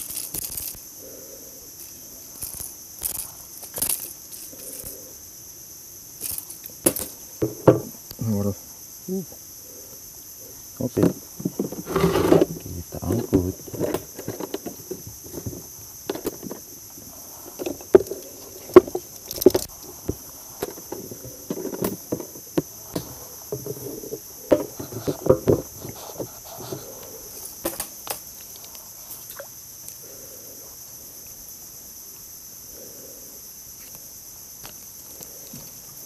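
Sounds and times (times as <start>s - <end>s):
insects calling: 0.0s - 36.0s
knocks of gear in wooden boat: 6.9s - 8.1s, 10.9s - 26.9s.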